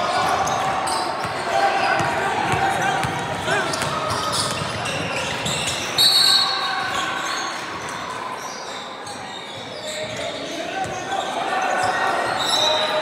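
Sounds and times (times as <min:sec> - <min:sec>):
shoes on the court: 0:00.0 - 0:13.0
basketball bouncing: 0:02.0 - 0:05.6
high-pitched shoe squeal: 0:04.2 - 0:13.0.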